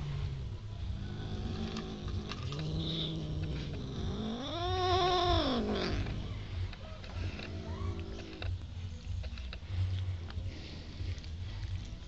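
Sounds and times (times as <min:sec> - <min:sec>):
cats growling low: 0:00.0 - 0:08.6
cat yowling: 0:04.3 - 0:06.1.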